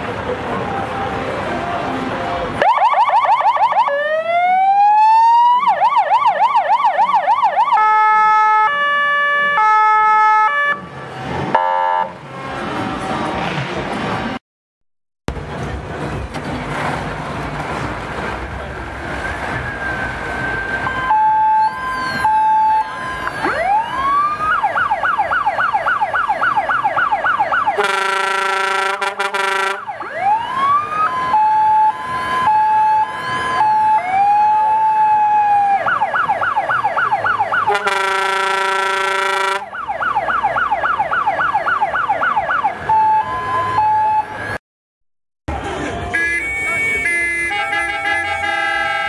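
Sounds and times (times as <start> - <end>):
electronic siren cycling patterns: 2.6 - 10.8, 20.5 - 44.3
loud horn blast: 11.5 - 13.6, 27.8 - 29.9, 37.7 - 39.7, 46.1 - 49.0.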